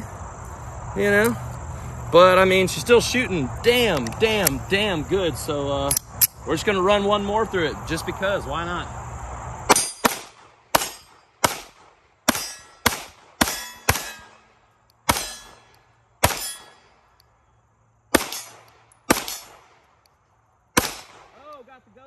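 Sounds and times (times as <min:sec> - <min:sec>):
pistol shots with ringing tail: 0:09.7 - 0:17.2, 0:18.1 - 0:19.9, 0:20.8 - 0:21.6.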